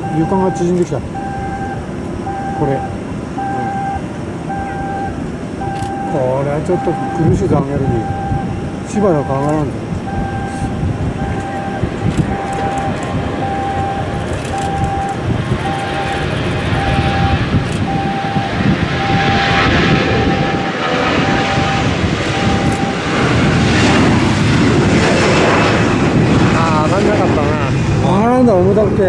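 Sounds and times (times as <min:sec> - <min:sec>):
short beeps: 0:00.0 - 0:23.1
jet engines roaring: 0:00.0 - 0:29.0.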